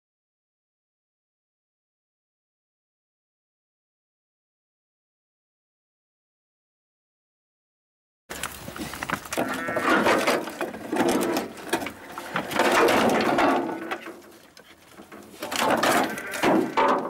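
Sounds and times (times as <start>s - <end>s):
corrugated sheets knocking and scraping: 8.3s - 17.0s.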